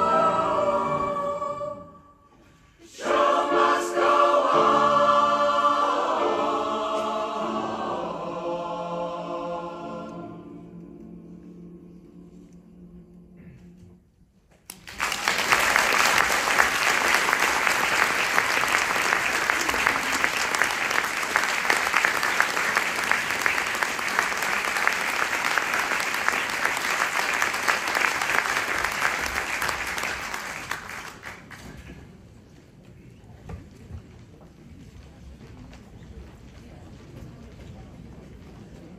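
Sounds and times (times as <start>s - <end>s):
choir holding a chord: 0.0s - 13.7s
audience applause: 14.7s - 31.6s.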